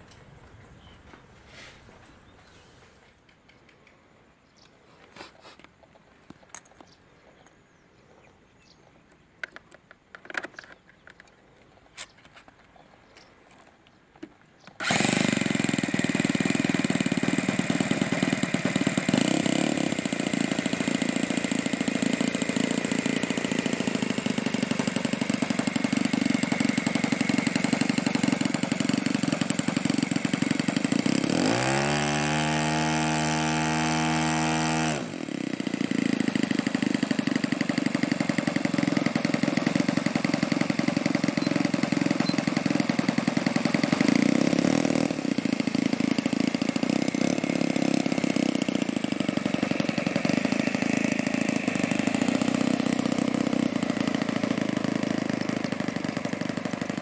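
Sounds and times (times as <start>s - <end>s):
model airplane engine and propeller: 14.7s - 57.0s.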